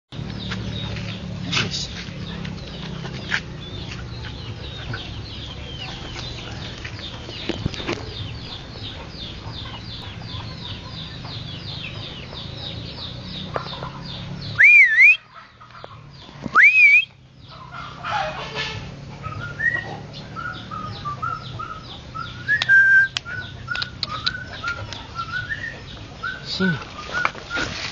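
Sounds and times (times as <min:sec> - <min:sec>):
high bird chirps: 0:02.2 - 0:15.4, 0:19.3 - 0:27.8
person whistling: 0:14.6 - 0:15.2, 0:16.6 - 0:17.1, 0:22.4 - 0:23.2.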